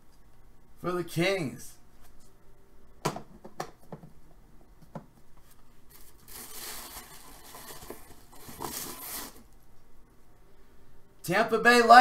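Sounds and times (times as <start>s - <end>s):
paper rustling and crinkling: 5.4s - 9.5s.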